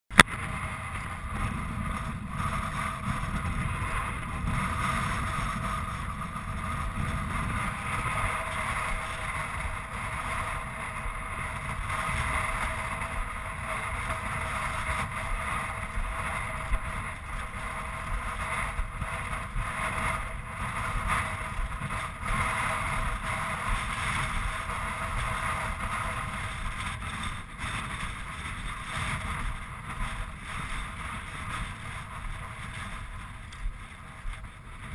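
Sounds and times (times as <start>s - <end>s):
wind buffeting microphone: 0.1s - 34.9s.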